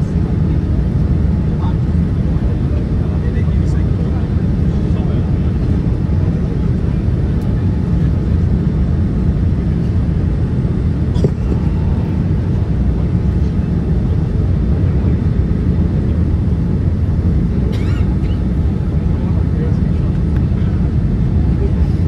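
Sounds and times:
aircraft cabin engine rumble: 0:00.0 - 0:22.0
rushing airflow: 0:09.0 - 0:17.7.

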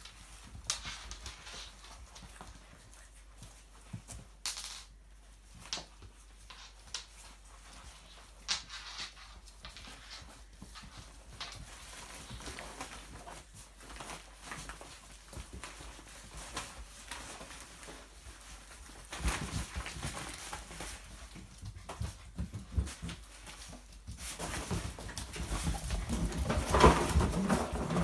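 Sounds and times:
puppy paws scrabbling on floor: 0:00.0 - 0:28.0
puppies wrestling thumps: 0:09.4 - 0:28.0.

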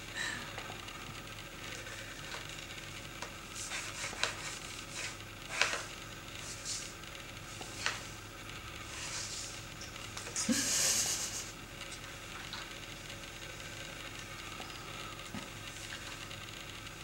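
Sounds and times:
kitten paws scratching and rustling: 0:03.2 - 0:08.2, 0:08.8 - 0:12.7.

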